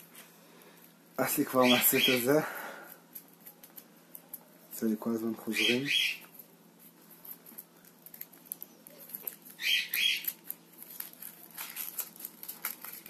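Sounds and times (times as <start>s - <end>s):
foil wrapper crinkling: 6.3s - 13.0s.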